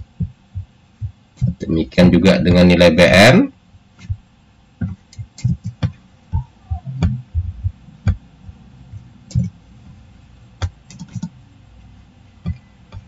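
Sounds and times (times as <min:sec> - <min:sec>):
mouse and keyboard clicks: 0:10.6 - 0:11.3.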